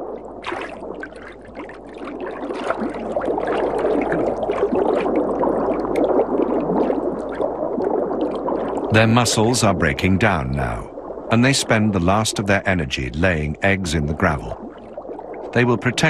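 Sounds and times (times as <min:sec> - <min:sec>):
crackle of small clicks: 0:05.8 - 0:06.3.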